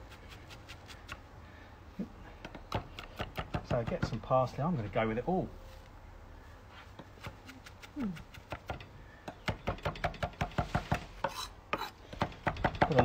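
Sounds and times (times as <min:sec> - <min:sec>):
knife chopping on wooden board: 0:07.2 - 0:13.0.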